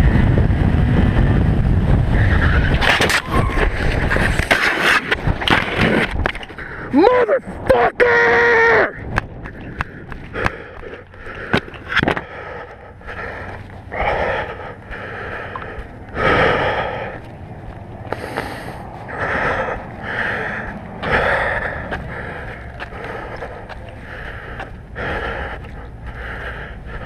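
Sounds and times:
man panting hard: 6.5 - 7.0, 9.0 - 17.4, 18.1 - 27.0.

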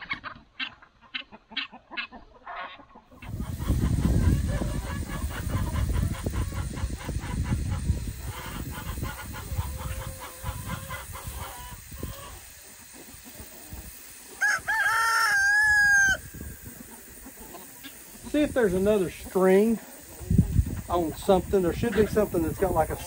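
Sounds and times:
rooster crowing: 14.4 - 16.6.

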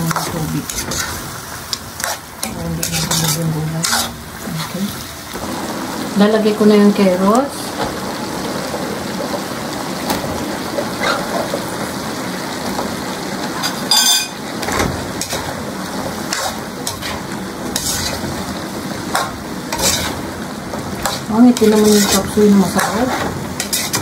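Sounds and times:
ladle scraping a pan: 0.0 - 4.8, 16.2 - 18.4, 19.1 - 20.3, 20.9 - 24.0
food sizzling in a wok: 0.0 - 24.0
ladle clanking on wok: 13.6 - 15.5.

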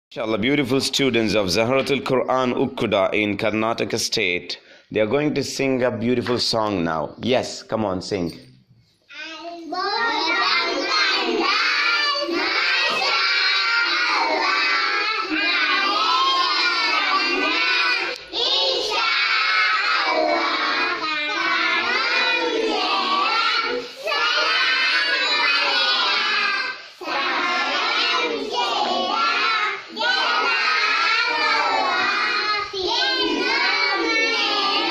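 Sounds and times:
children singing: 9.8 - 34.9.

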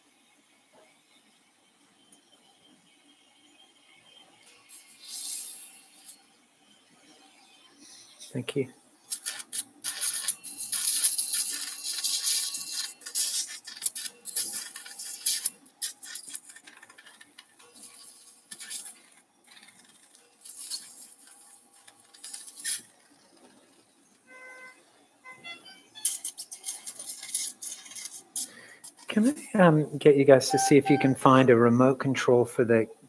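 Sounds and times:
surgical suction hissing and sputtering: 4.5 - 6.3, 9.0 - 24.1, 26.0 - 29.5.

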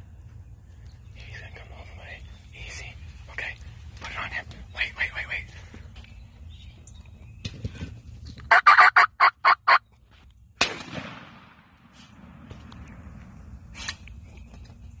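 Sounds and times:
turkey gobbling: 8.5 - 9.8.

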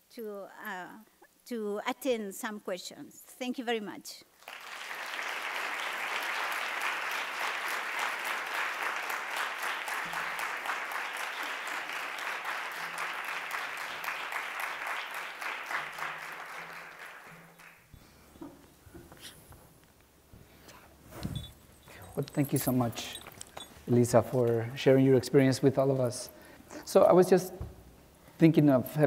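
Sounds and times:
audience applauding: 4.4 - 17.9.

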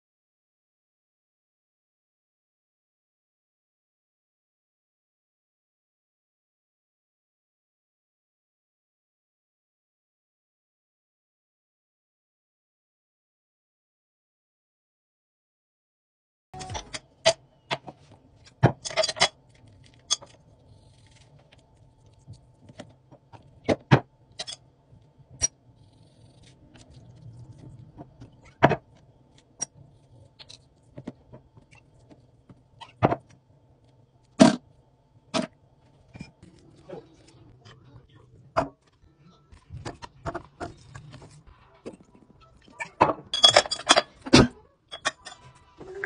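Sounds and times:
kitchen utensils knocking: 43.0 - 44.2.

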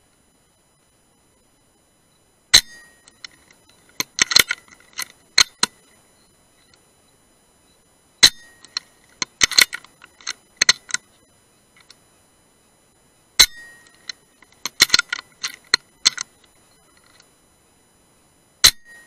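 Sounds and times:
rifle action metallic clicks: 3.1 - 5.8, 8.6 - 11.0, 13.8 - 16.3.

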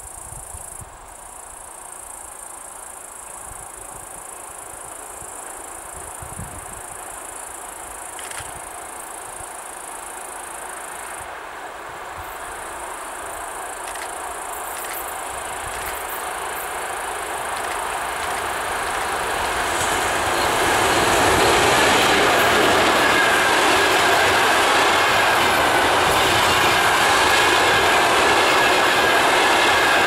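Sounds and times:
insects trilling: 0.0 - 30.0
train rumbling on rails: 0.0 - 30.0.

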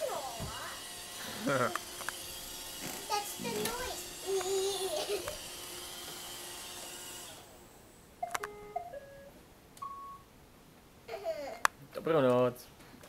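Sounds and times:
robot vacuum running: 0.0 - 7.8.

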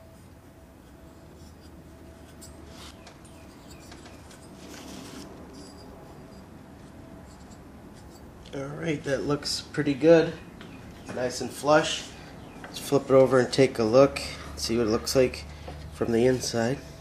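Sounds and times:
fingertip rubbing on metal: 0.0 - 8.4.

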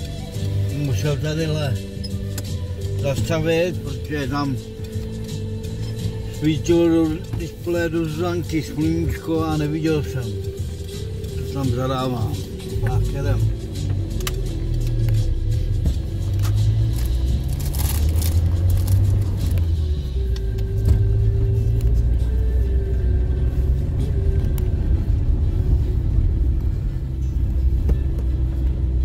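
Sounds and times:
car engine and tyre rumble: 0.0 - 29.0.

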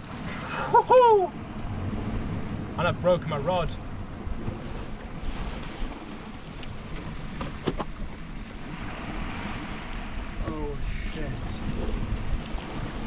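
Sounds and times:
sea waves washing: 0.0 - 13.0
wind buffeting microphone: 0.0 - 13.0.

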